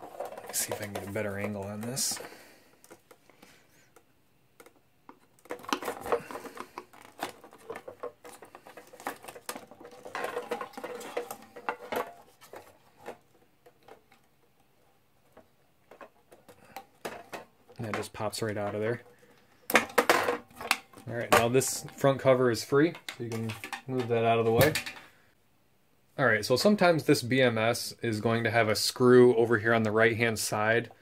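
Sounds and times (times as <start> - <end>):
plastic connector clicks and scraping: 3.9 - 14.3.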